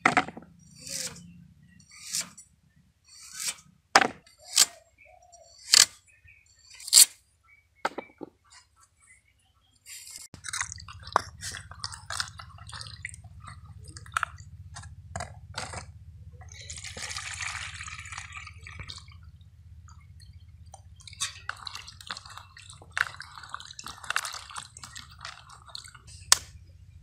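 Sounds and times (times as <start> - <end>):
hands rubbing taro pieces in water: 10.4 - 14.4, 21.0 - 26.5
water poured out of basin: 16.5 - 19.2, 21.0 - 26.1.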